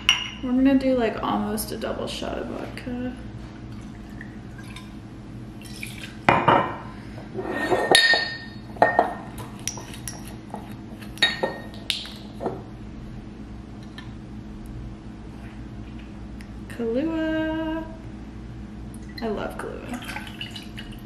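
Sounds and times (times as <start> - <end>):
glass bottles clinking: 7.6 - 9.3, 11.2 - 11.7.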